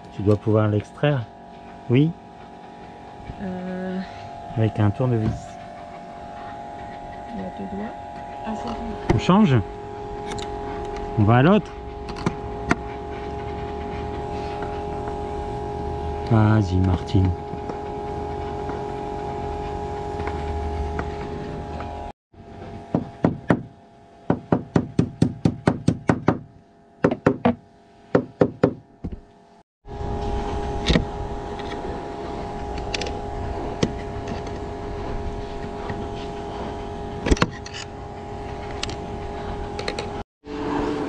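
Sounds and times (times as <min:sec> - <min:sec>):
mechanical hum with two tones: 0:00.0 - 0:41.0.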